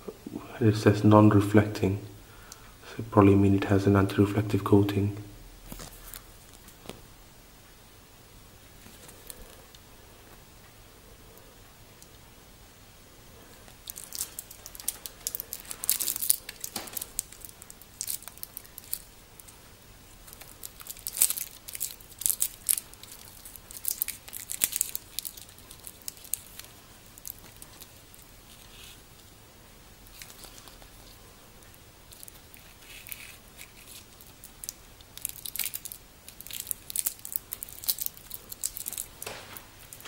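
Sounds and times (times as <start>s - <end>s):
paper tag crinkling: 13.8s - 19.5s, 32.1s - 40.0s.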